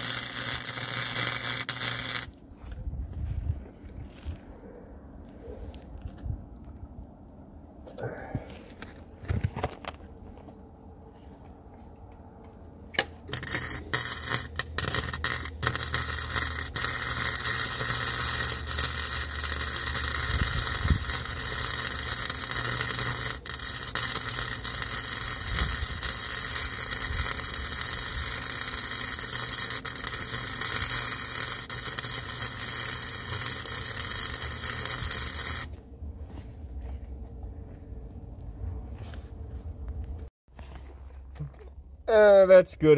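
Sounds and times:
arc welder crackling: 0.0 - 2.4, 12.9 - 35.8.

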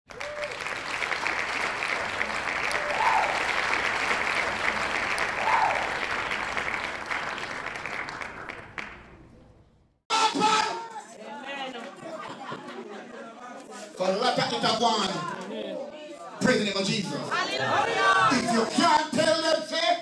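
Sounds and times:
crowd applauding: 0.1 - 9.4.

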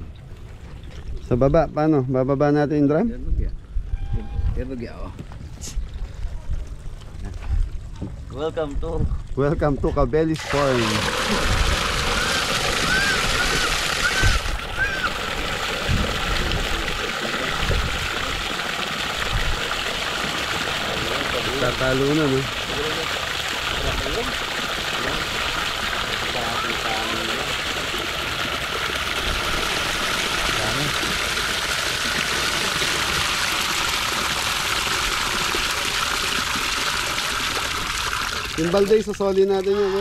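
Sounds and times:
water splashing into pond: 10.3 - 40.0.

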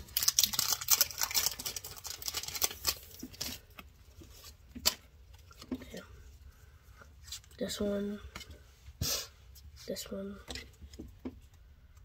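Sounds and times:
foil wrapper crinkling: 0.0 - 3.8.

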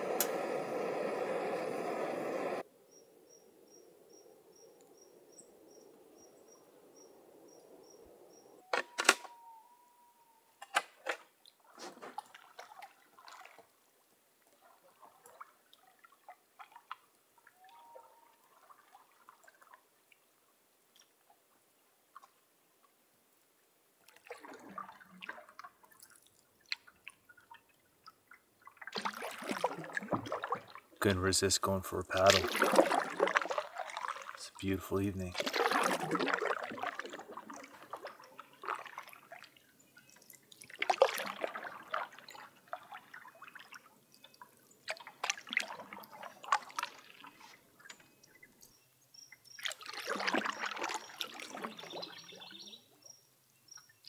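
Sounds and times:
paddle splashing in water: 10.7 - 13.8, 14.5 - 19.8, 24.1 - 27.6, 28.3 - 31.0, 32.1 - 48.5, 49.5 - 52.7.

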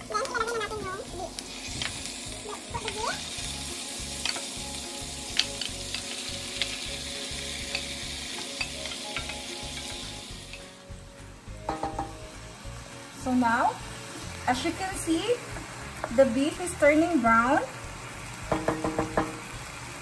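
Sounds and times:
meat sizzling in a skillet: 0.0 - 20.0
spoon knocking against pan: 11.6 - 12.2, 18.5 - 19.4.

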